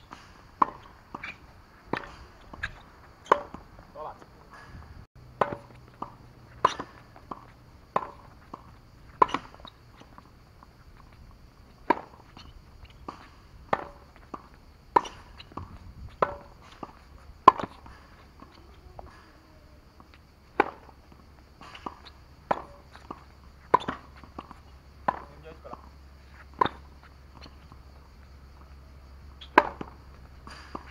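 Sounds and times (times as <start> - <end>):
tennis ball bouncing: 0.0 - 30.9
tennis racket hitting ball: 0.1 - 19.3, 19.9 - 27.8, 29.4 - 30.9.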